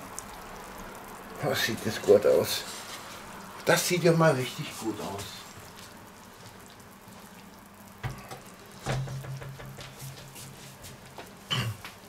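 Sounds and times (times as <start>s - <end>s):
kitchenware knocking and clattering: 8.0s - 9.8s.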